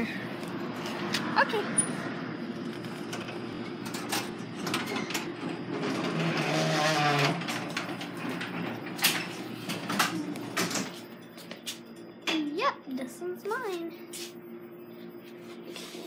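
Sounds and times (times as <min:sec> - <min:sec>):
garage door sliding open: 0:01.8 - 0:11.3.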